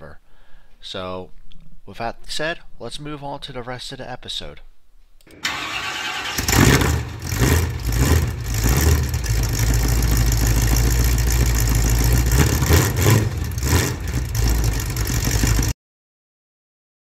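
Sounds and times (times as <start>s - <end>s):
car engine running: 5.4s - 15.7s.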